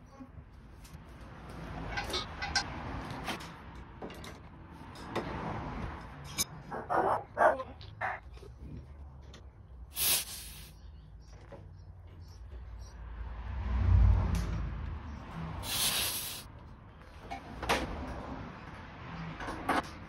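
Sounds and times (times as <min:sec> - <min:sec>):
tools clicking and knocking: 0:01.9 - 0:02.8
brief hiss: 0:15.6 - 0:16.5.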